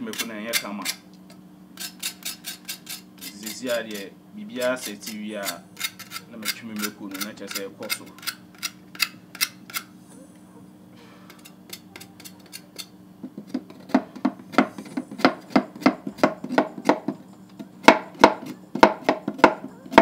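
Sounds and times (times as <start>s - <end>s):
knife scraping charred skin: 0.0s - 1.1s, 1.8s - 9.9s, 11.3s - 12.9s.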